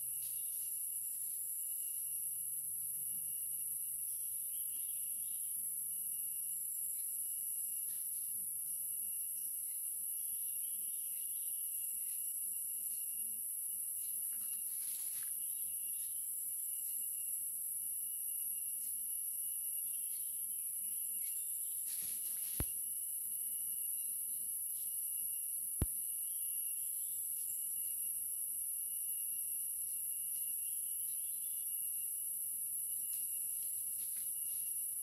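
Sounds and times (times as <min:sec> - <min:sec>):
high-pitched insect drone: 0:00.0 - 0:35.0
thin insect tone: 0:00.0 - 0:35.0.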